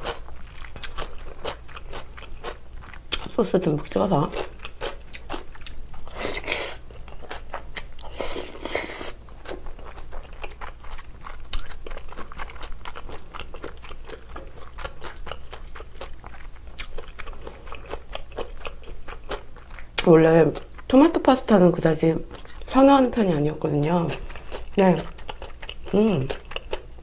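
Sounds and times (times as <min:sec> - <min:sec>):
wet chewing mouth clicks: 0:10.2 - 0:20.1.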